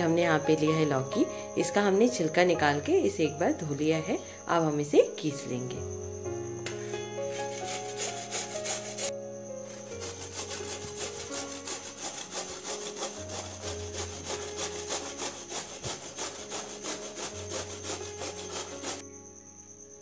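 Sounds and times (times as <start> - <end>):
gourd grated on metal grater: 7.2 - 9.1, 9.8 - 19.0.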